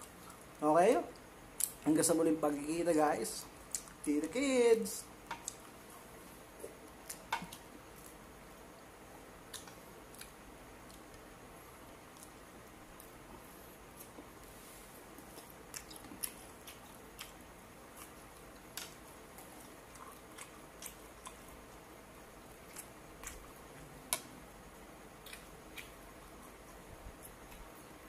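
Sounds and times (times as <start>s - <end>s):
mouth chewing clicks and smacks: 5.3s - 5.8s, 15.2s - 21.6s, 22.6s - 23.6s, 25.2s - 27.8s.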